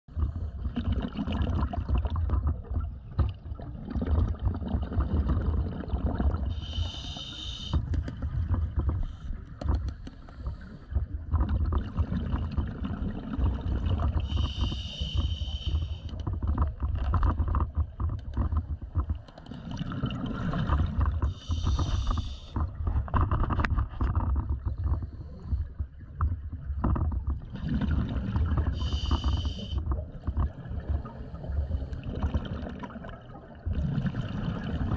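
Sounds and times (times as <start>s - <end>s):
gurgling exhaled bubbles: 0.1s - 18.0s, 18.8s - 34.9s
regulator hissing inhale: 6.5s - 7.8s, 14.2s - 16.1s, 21.3s - 22.6s, 28.8s - 29.8s.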